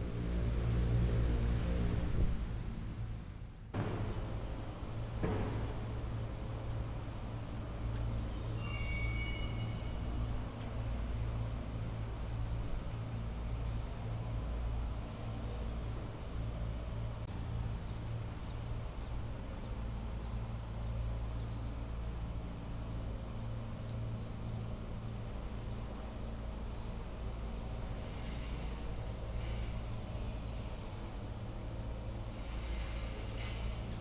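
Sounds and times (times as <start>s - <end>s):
low droning hum: 0.0s - 34.0s.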